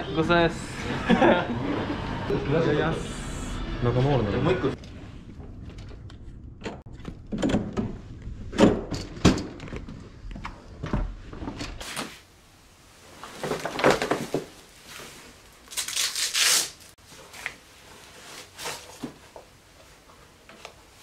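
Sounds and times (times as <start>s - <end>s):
rustling of clothes and bags: 13.0s - 21.0s.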